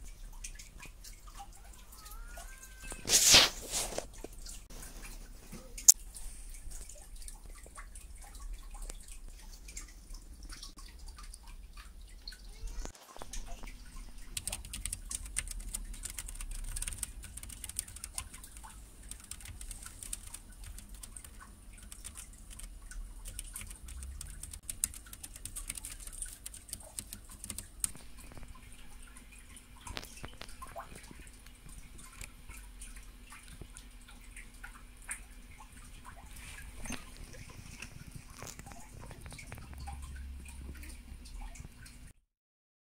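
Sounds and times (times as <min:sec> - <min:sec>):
mechanical keyboard typing: 0:14.3 - 0:28.1.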